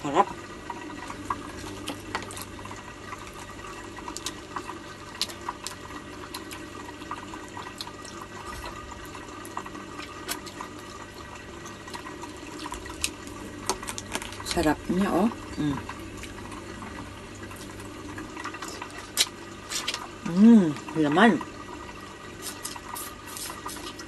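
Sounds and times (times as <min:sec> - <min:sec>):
trickle of aquarium filter water: 0:00.0 - 0:24.0
crab shell cracking: 0:04.0 - 0:06.7, 0:11.9 - 0:14.5.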